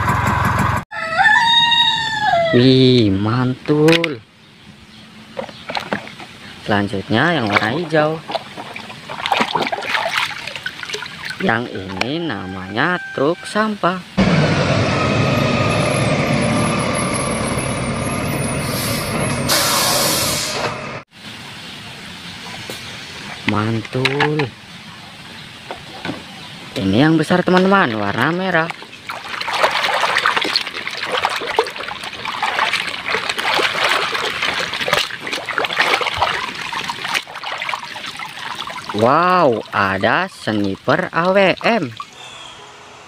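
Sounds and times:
garbage truck engine running: 0.0 - 0.8, 14.2 - 21.0
water sloshing and splashing: 5.2 - 12.2, 25.6 - 42.2
air brakes hissing: 18.6 - 20.8.

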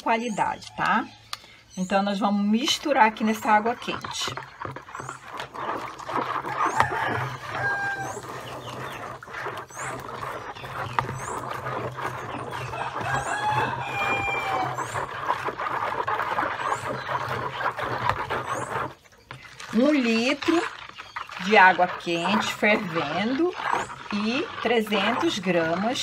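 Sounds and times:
spatula stirring water in basin: 0.0 - 26.0
chickens clucking: 5.6 - 15.1.

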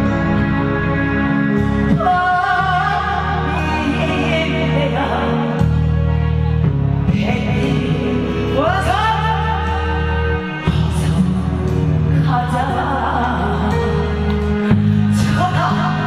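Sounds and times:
amplified backing music: 0.0 - 16.0
woman singing: 1.9 - 5.8, 7.1 - 16.0.

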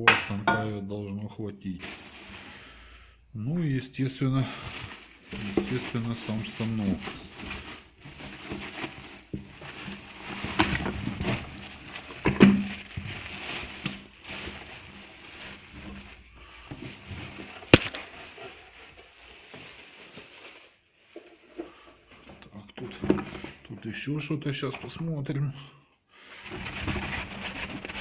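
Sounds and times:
packaging rustling and crinkling: 1.8 - 2.8, 4.5 - 21.4.

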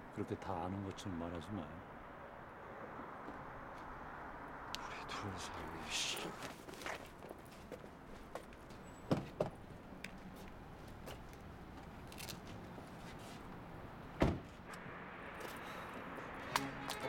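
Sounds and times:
car door shutting thud: 14.2 - 14.5.

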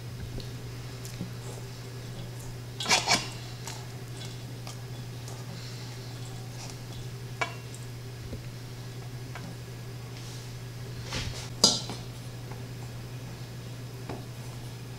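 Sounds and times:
steady low hum: 0.0 - 14.9
metal bowls clinking: 1.0 - 5.5, 6.1 - 7.9.

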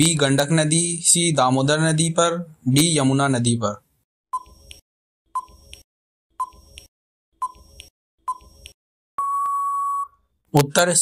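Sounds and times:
countdown timer beeps: 7.4 - 10.2
long steady beep: 9.2 - 10.2.

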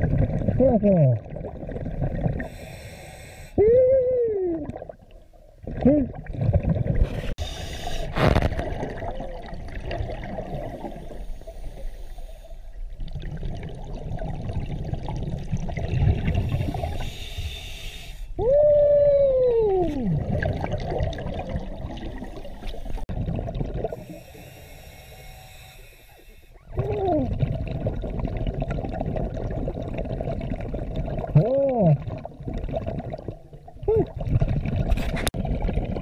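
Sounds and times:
diver breathing through regulator: 2.4 - 3.6, 7.0 - 8.4, 10.8 - 12.7, 16.4 - 18.4, 23.9 - 26.7.

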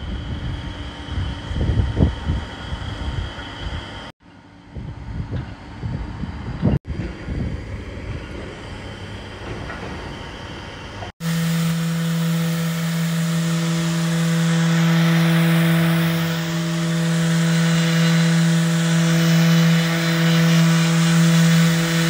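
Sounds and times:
orbital sander humming: 11.2 - 22.0.

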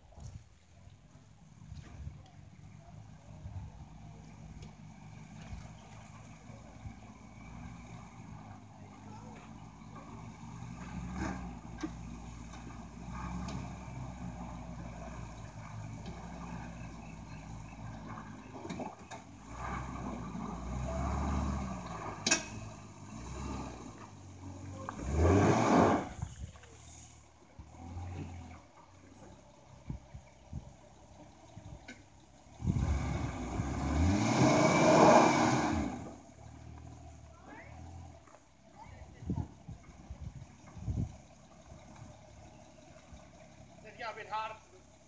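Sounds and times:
engine pulling at low revs: 0.0 - 45.0
engine revving hard: 10.0 - 11.9, 12.5 - 18.3, 19.4 - 26.2, 32.5 - 38.1.

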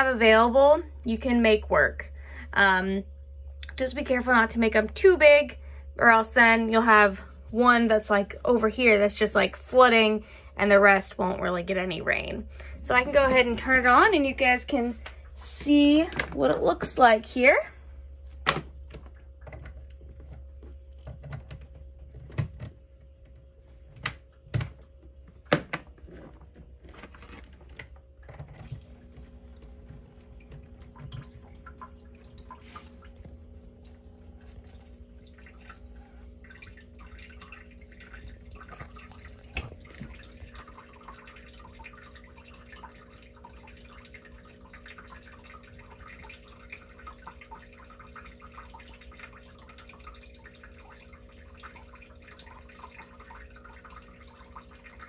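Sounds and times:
small water pump humming: 0.0 - 55.0
water dripping into tank: 28.4 - 55.0.

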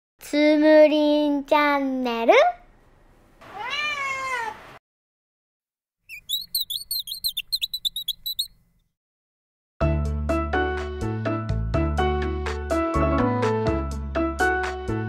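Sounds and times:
cat meowing: 3.4 - 4.6
small birds twittering: 6.1 - 8.6.

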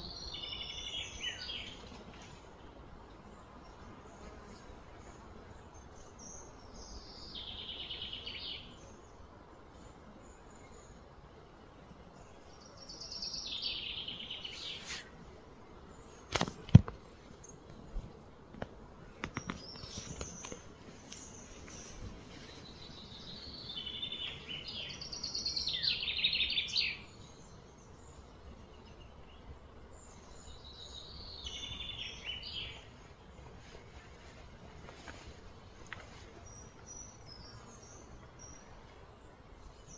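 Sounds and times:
bird song trills: 0.0 - 1.9, 5.6 - 9.2, 12.2 - 14.9, 19.3 - 33.2
outdoor background hiss: 0.0 - 39.9.

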